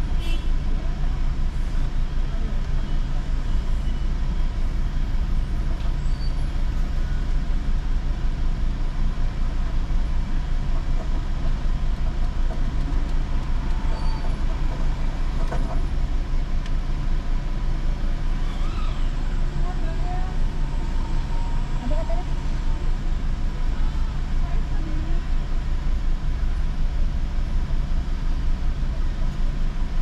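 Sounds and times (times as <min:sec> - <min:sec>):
car engine idling: 0:00.0 - 0:30.0.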